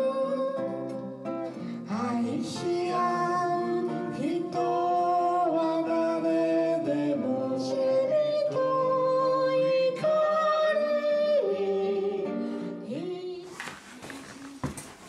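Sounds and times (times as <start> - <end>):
acoustic guitar plucking: 0.0 - 13.5
person singing folk song: 0.0 - 15.0
room noise: 13.4 - 15.0.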